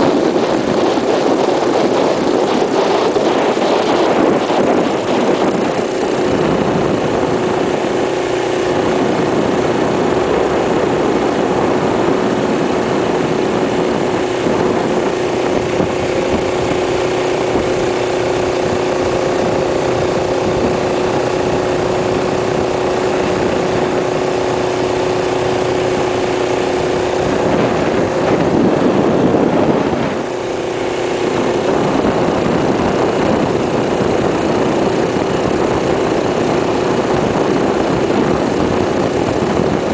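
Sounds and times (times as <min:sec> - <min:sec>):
wind rushing over microphone: 0:00.0 - 0:39.9
minibike engine running: 0:12.0 - 0:39.9.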